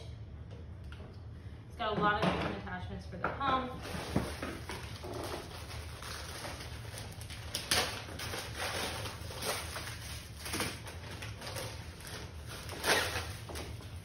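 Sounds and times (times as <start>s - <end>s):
plastic packaging rustling: 3.8s - 14.0s.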